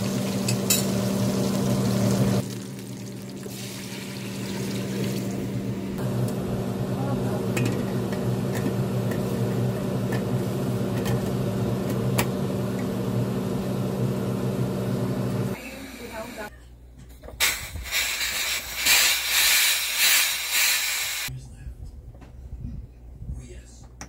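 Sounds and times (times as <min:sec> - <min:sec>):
liquid sizzling in hot pot: 0:00.0 - 0:05.6.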